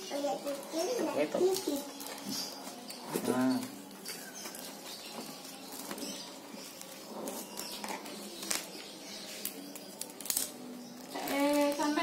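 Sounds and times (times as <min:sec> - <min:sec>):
plastic wrapping crinkling: 0:01.4 - 0:12.0.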